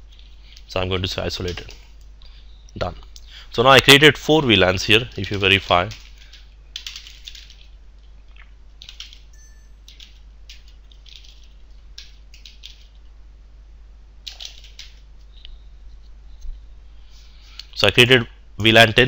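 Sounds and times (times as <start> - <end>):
low steady hum: 0.0 - 19.0
keyboard keys clicking: 8.8 - 9.2, 9.8 - 13.0.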